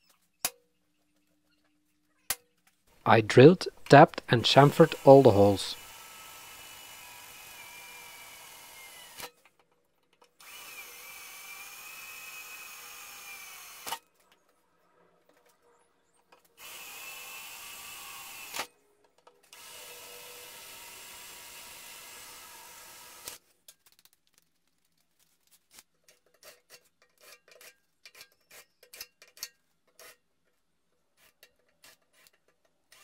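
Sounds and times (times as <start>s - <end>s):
drill sharp click: 3.8s - 5.9s
cordless drill motor whine: 5.7s - 9.3s, 10.4s - 14.0s, 16.6s - 18.7s, 19.5s - 23.4s.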